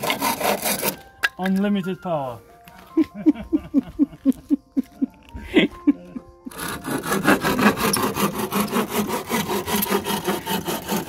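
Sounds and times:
power saw cutting wood: 0.0s - 1.0s, 6.5s - 11.0s.

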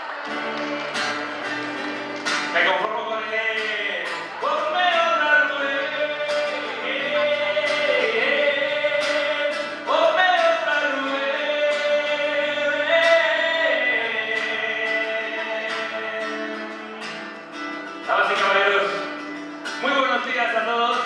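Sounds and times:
strummed acoustic guitar: 0.0s - 21.0s
man singing into microphone: 2.5s - 17.3s.

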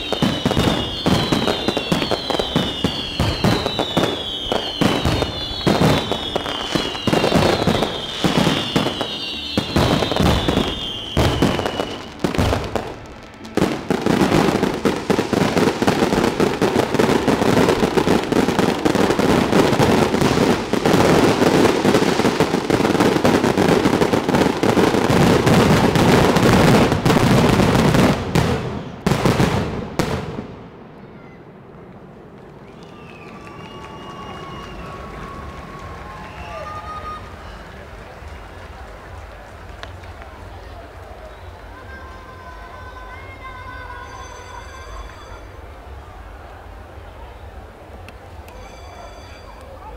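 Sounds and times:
falling firework whistles: 0.0s - 28.2s, 32.6s - 37.7s
firework bangs: 0.0s - 42.0s
fireworks bursts and crackling: 0.0s - 49.9s.

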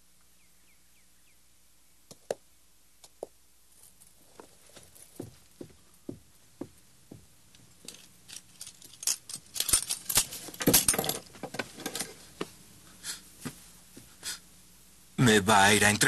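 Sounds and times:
boot footsteps on wooden floor: 4.4s - 7.4s
metallic clinks: 7.8s - 12.1s.

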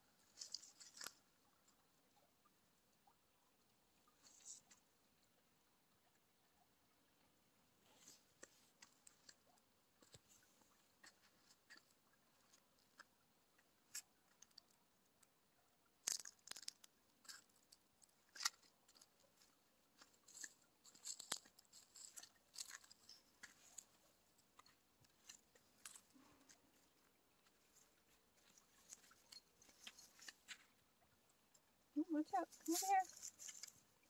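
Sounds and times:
dry grass crackling underfoot: 0.2s - 1.3s, 18.3s - 30.6s, 32.1s - 34.0s.

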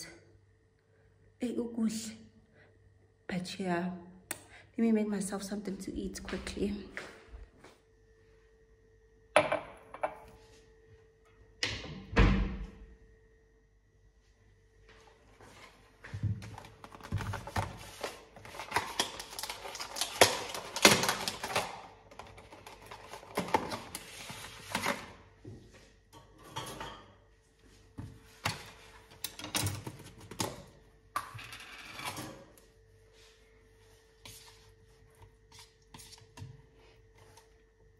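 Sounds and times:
plastic crinkling: 16.6s - 24.1s.

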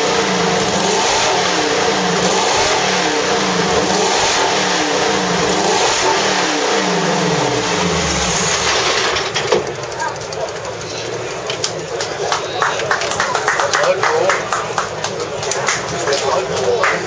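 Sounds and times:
race car engine revving: 0.0s - 12.9s.

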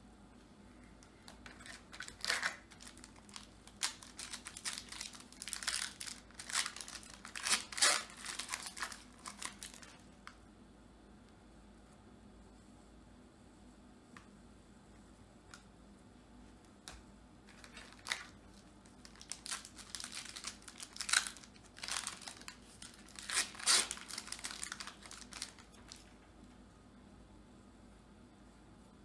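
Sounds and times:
card pack wrapper crinkling and tearing: 1.3s - 10.0s, 17.5s - 26.1s.

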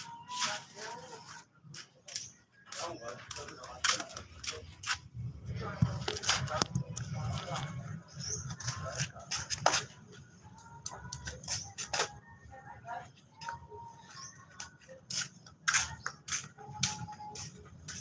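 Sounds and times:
flip-flop footsteps on concrete: 1.8s - 5.1s, 8.6s - 12.2s, 14.2s - 18.0s.

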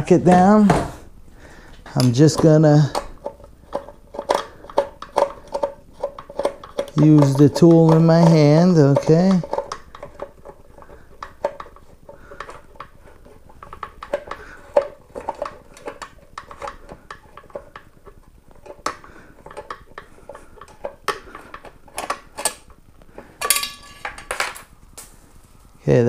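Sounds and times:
screw falling with metallic clatter: 23.4s - 25.1s.

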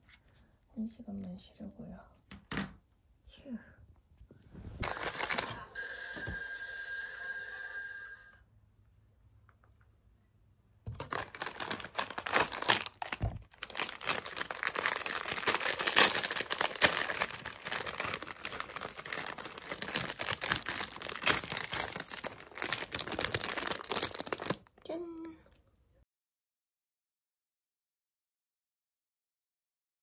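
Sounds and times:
plastic packaging crinkling: 4.8s - 5.6s, 10.9s - 24.8s.

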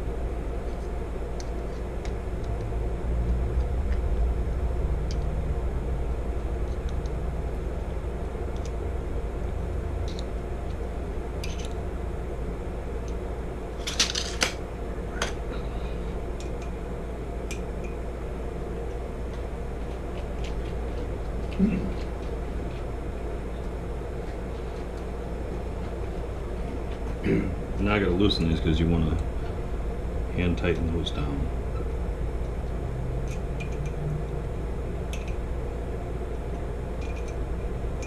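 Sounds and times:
steady low hum: 0.0s - 38.0s
clinks of tools and metal parts: 11.4s - 11.8s, 13.8s - 14.6s, 37.0s - 37.4s.

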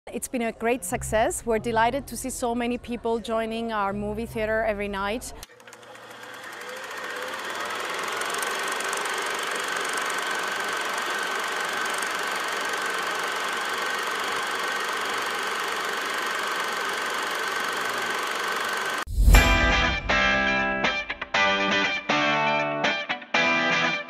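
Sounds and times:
film projector clattering: 5.4s - 19.1s.

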